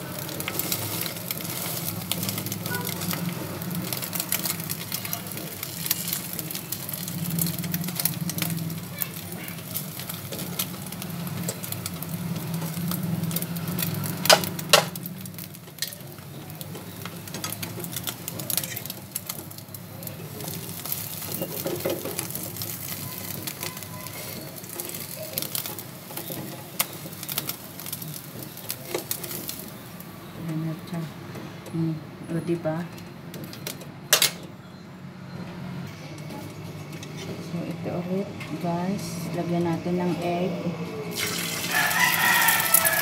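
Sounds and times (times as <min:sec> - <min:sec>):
bread sizzling in oil: 0:00.0 - 0:31.3, 0:41.1 - 0:43.0.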